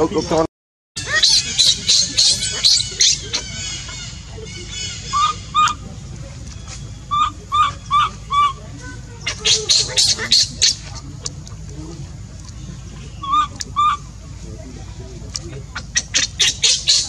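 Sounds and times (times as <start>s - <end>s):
infant monkey squealing: 1.0s - 5.8s, 7.1s - 8.6s, 9.2s - 11.0s, 13.2s - 14.0s, 15.8s - 17.0s
monkey chirping calls: 1.0s - 14.2s, 15.3s - 17.0s.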